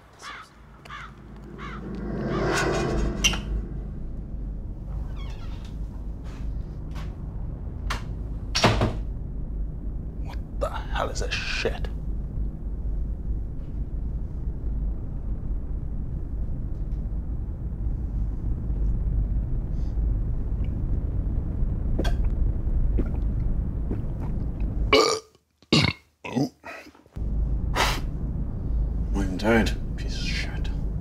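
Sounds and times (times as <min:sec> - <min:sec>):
low room hum: 0:00.0 - 0:25.2, 0:26.7 - 0:31.0
man burping loudly: 0:24.9 - 0:26.8.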